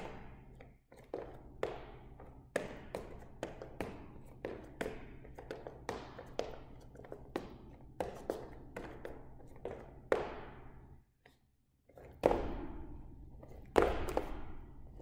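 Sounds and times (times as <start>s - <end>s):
footsteps tapping on gym floor: 13.6s - 15.0s.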